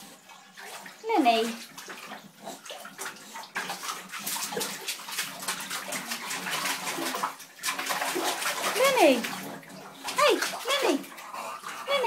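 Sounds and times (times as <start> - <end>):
dog lapping water: 0.0 - 12.0.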